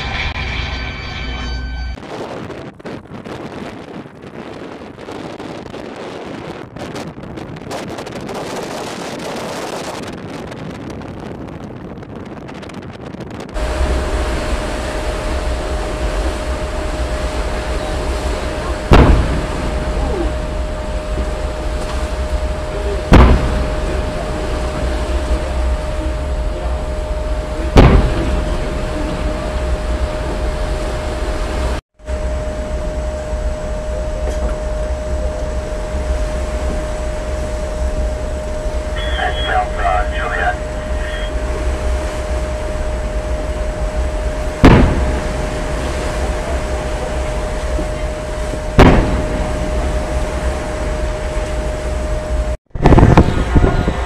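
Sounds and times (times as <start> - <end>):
wind rumble on microphone: 0.0 - 54.0
faint hum: 13.6 - 54.0
loud gun blast: 18.8 - 20.1, 23.0 - 24.7, 27.7 - 28.9, 44.6 - 45.9, 48.7 - 50.1
sharp bangs with echo: 18.9 - 19.8, 23.1 - 24.0, 27.8 - 28.6, 44.6 - 45.5, 48.8 - 49.8
faint steady tone: 32.1 - 52.6.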